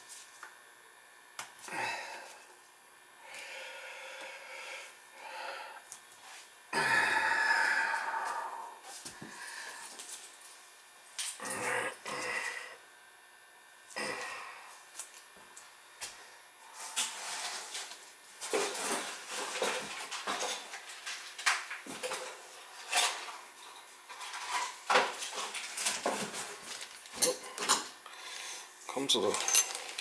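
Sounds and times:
plastic bag crinkling: 25.4s - 27.3s, 29.2s - 30.0s.

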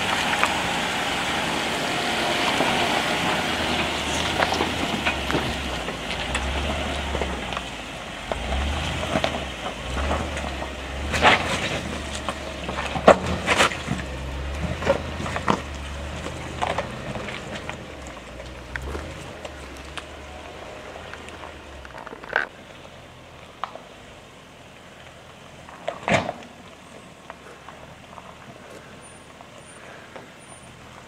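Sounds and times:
car engine humming low: 0.0s - 31.0s
rocks clicking under tyres: 0.0s - 31.0s
tyres crunching on gravel: 0.0s - 31.0s.

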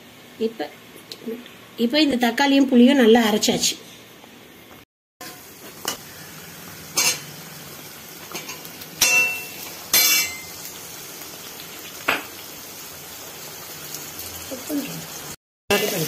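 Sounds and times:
faint oil sizzle: 5.2s - 16.0s
metal ladle clanking on pan: 6.9s - 7.3s, 8.3s - 10.5s.

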